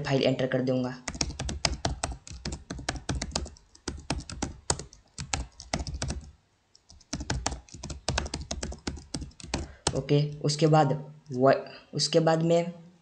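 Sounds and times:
keyboard typing: 1.0s - 10.4s.

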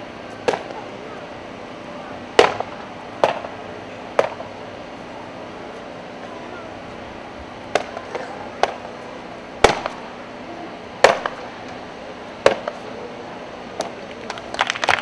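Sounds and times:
applause: 14.2s - 15.0s.

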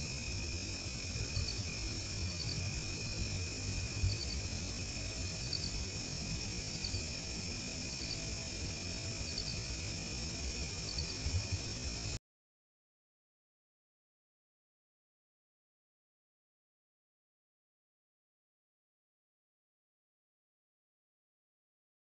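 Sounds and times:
cricket triple chirp: 0.0s - 12.2s
crickets trilling: 0.0s - 12.2s.

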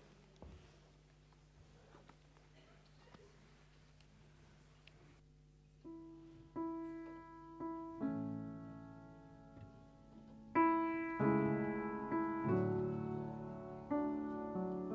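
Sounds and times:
slow piano music: 5.8s - 14.9s.

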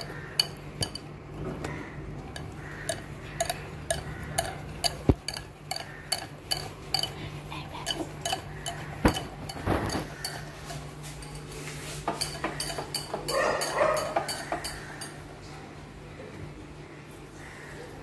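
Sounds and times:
fork clinking against ceramic bowl: 0.0s - 1.1s, 2.3s - 7.2s, 7.8s - 11.5s, 12.1s - 15.2s.

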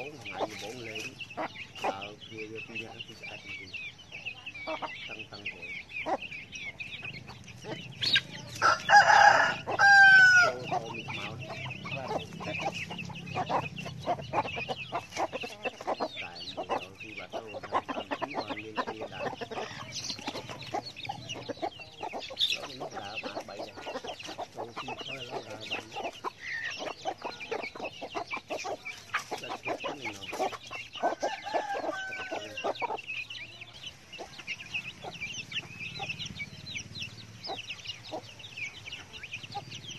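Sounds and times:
chicks peeping: 0.0s - 39.9s
hens clucking: 0.0s - 39.9s
rooster crowing: 8.6s - 10.9s, 31.0s - 32.8s.

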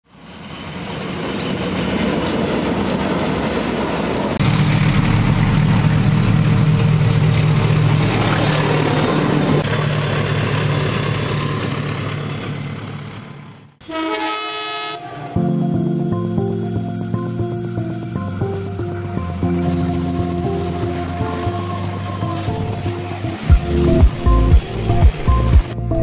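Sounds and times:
train rail clatter: 0.1s - 13.6s
diesel engine droning: 4.4s - 13.8s.

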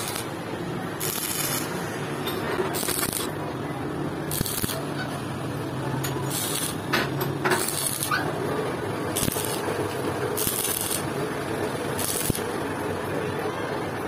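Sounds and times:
arc welding crackling hiss: 0.0s - 0.4s, 1.0s - 2.0s, 2.8s - 3.3s, 4.3s - 5.0s, 6.2s - 6.9s, 7.5s - 8.2s, 9.1s - 11.2s, 11.8s - 12.6s.

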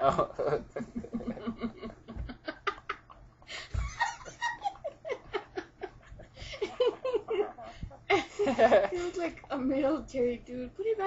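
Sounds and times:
people laughing hard: 0.5s - 9.3s.

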